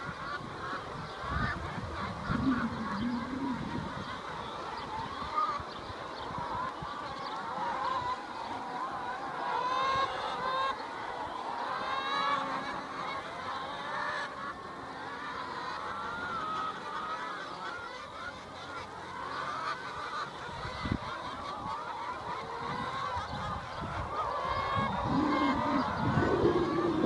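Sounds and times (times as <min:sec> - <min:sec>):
hens clucking: 0:00.0 - 0:27.0
low rumbling noise: 0:02.4 - 0:03.9, 0:24.8 - 0:27.0.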